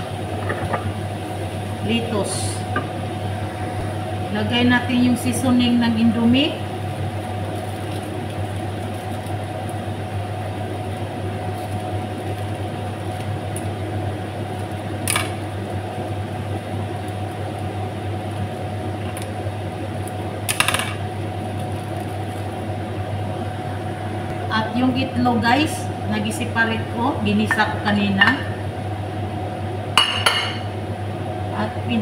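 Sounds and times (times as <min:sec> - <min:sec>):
low mechanical hum: 0:00.0 - 0:32.0
plastic sachet crackling: 0:07.2 - 0:09.9, 0:10.9 - 0:13.7.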